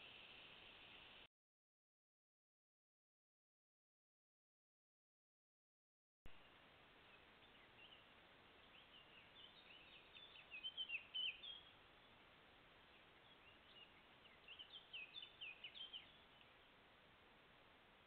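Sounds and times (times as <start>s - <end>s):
microphone hiss: 0.0s - 1.3s, 6.3s - 18.0s
songbird chirping: 6.3s - 18.0s.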